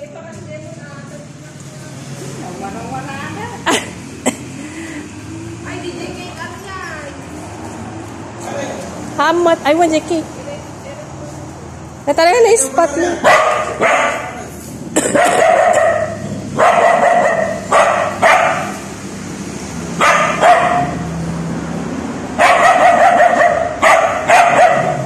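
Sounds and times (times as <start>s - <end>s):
dog barking and yelping: 13.2s - 14.5s, 15.1s - 18.9s, 20.0s - 21.0s, 22.4s - 25.0s.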